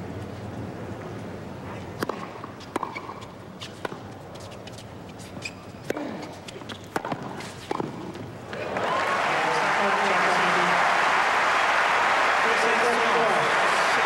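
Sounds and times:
tennis ball struck by rackets: 2.0 - 4.1, 5.8 - 8.2
shoe squeaks: 4.4 - 6.8.

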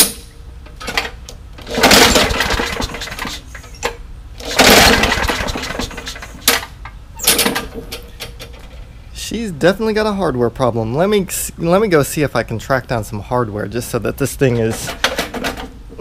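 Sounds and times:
lawn mower engine starting: 0.8 - 8.8
engine rattling: 1.6 - 3.8, 4.4 - 6.8
engine sputtering: 1.6 - 3.8, 4.4 - 6.8.

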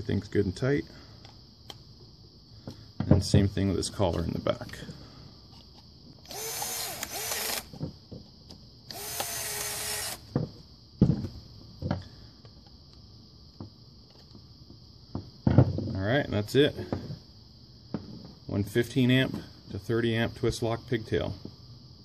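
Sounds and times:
cordless drill motor whine: 6.2 - 7.8, 8.9 - 10.3.

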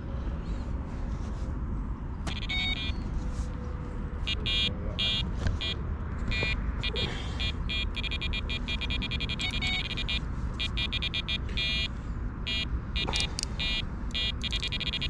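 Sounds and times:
bite alarms beeping: 2.3 - 3.0, 4.2 - 15.0.

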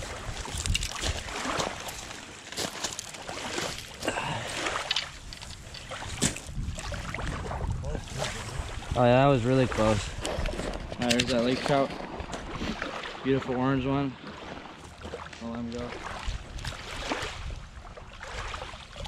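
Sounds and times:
water lapping at shore: 0.0 - 19.0
footsteps crunching on gravel: 0.1 - 4.3.

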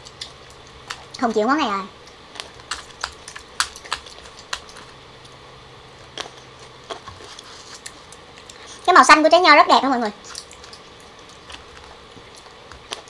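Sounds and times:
grapes being chewed crunchily: 0.0 - 8.9, 10.2 - 13.0.

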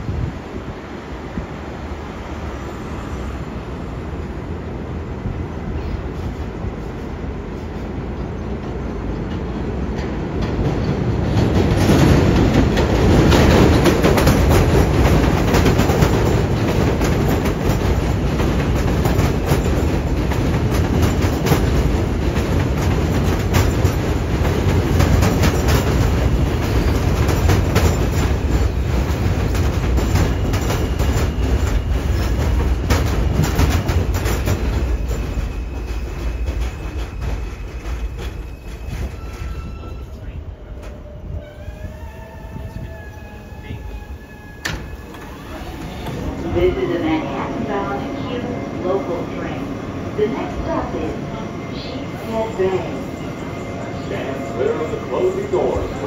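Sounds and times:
train wheels clattering over joints: 8.6 - 40.1.

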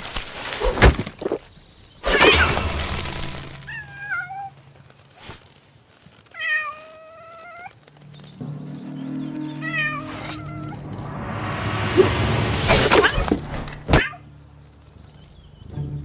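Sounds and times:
cat meow: 3.7 - 4.6, 6.3 - 7.8, 9.6 - 10.8
background music: 8.0 - 16.0
rising whoosh: 8.1 - 13.8
sharp hit: 8.3 - 13.9.

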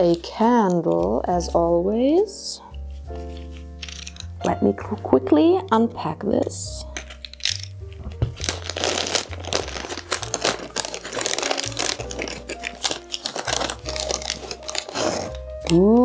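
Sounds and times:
soft background music: 0.0 - 16.0
crinkly wrapping rustling: 7.0 - 16.0.

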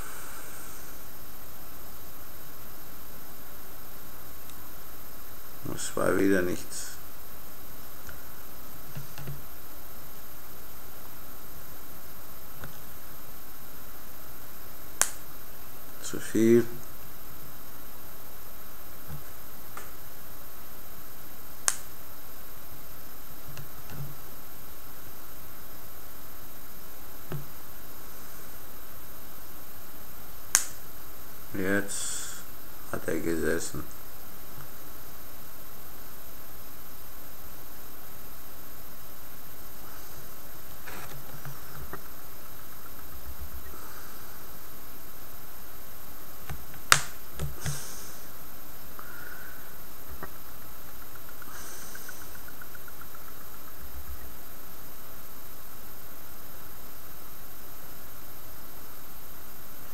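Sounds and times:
background hiss: 0.0 - 59.9
wire welder sparking snap: 15.0 - 15.2, 21.6 - 21.9, 30.5 - 30.8, 46.7 - 47.9
faint ticks: 21.6 - 21.9, 50.1 - 54.4.

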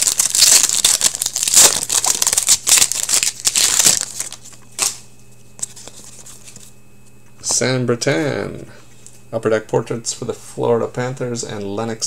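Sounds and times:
foil wrapper crinkling: 0.0 - 6.7.

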